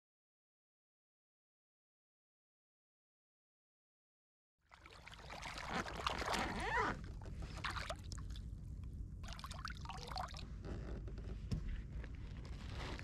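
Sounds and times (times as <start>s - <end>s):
fish thrashing in water: 4.8s - 6.6s.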